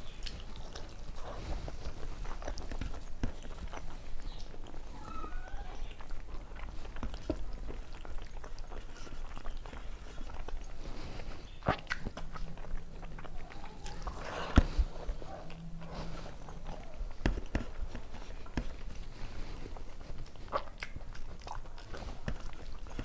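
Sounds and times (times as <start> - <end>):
person chewing with wet mouth sounds: 0.0 - 23.0.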